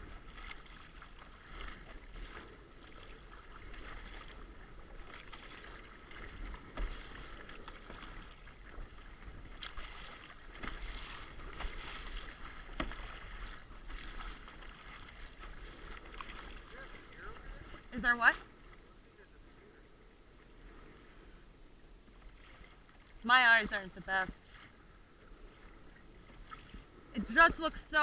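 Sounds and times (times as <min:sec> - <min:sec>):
wind rumble on microphone: 0:00.0 - 0:18.3
water lapping against kayak: 0:00.0 - 0:28.0
sharp splashes or knocks: 0:05.0 - 0:16.9.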